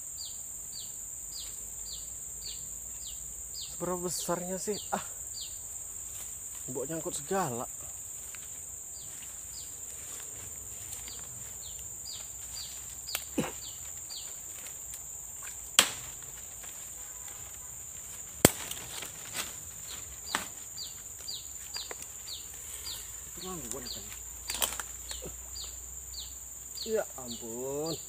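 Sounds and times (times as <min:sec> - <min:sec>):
insect drone: 0:00.0 - 0:28.0
sharp loud clicks: 0:18.4 - 0:19.1.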